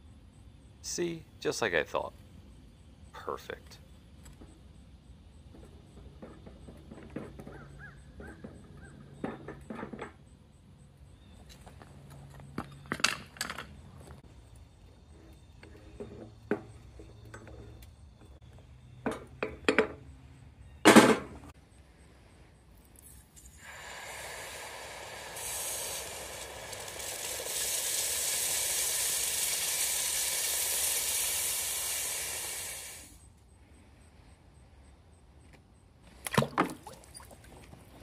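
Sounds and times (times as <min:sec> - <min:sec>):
steady hiss: 0:00.8 - 0:02.1, 0:21.9 - 0:33.4.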